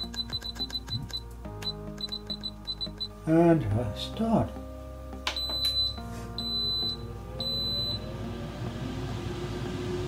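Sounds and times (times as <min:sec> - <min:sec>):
high-pitched appliance beeps: 0:00.0 - 0:03.2, 0:05.4 - 0:08.1
fan motor humming: 0:06.6 - 0:10.0.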